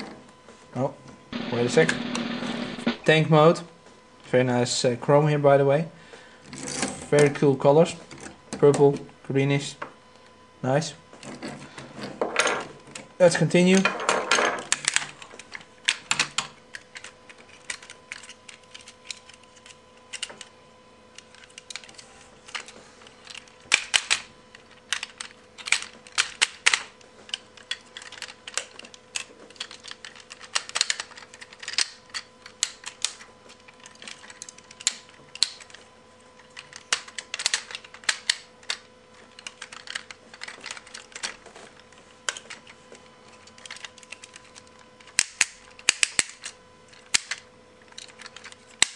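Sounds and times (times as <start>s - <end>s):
plastic toy parts clicking: 14.7s - 20.4s, 21.2s - 35.8s, 36.4s - 41.4s, 43.3s - 48.9s.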